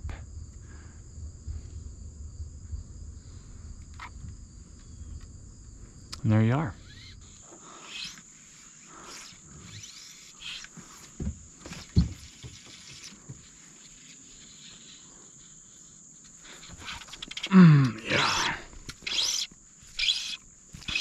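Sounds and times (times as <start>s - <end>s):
crickets chirping: 0.0s - 21.0s
dull knocks: 11.2s - 12.6s
low falling vocal sound: 17.5s - 18.7s.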